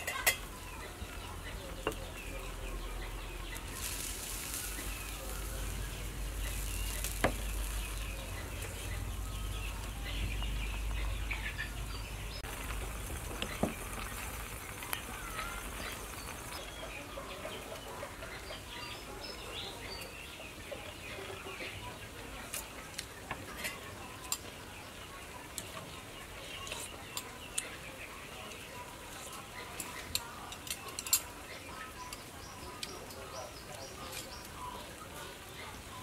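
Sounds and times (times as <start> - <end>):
steady hiss: 2.2 - 9.1.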